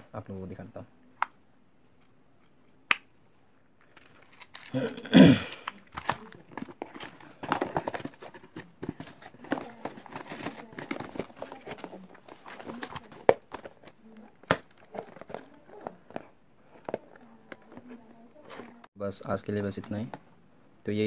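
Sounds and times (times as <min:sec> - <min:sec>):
cardboard and paper rustling: 0:05.6 - 0:18.9.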